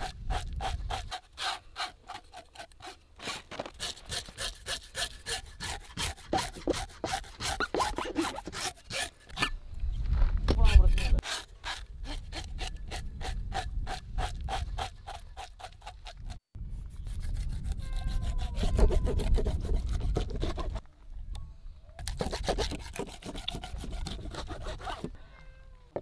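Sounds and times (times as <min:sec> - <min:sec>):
knife scraping fish scales: 0:17.0 - 0:20.8, 0:22.0 - 0:25.1.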